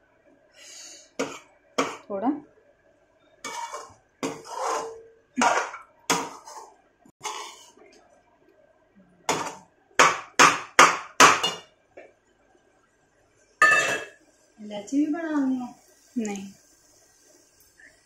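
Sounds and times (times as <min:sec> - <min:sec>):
steel spoon scraping a pan: 0:03.4 - 0:07.8.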